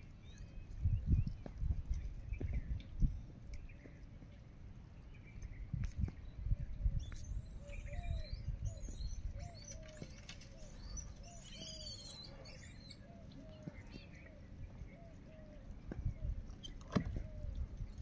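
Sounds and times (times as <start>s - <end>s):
birds chirping and whistling: 0.2s - 1.5s, 5.2s - 18.0s
short low repeated bird calls: 5.1s - 18.0s.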